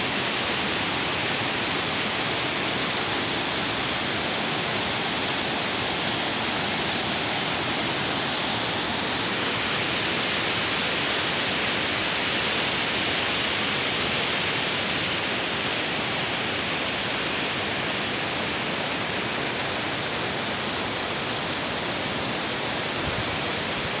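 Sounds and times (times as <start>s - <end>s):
water rushing over rocks: 0.0s - 24.0s.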